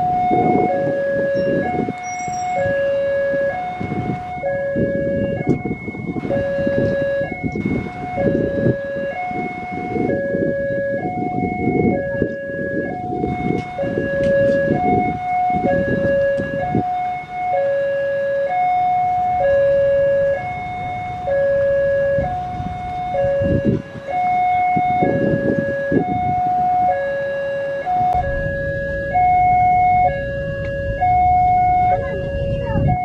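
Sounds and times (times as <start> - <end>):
low traffic rumble: 0.0 - 33.0
two-tone level crossing alarm: 0.0 - 33.0.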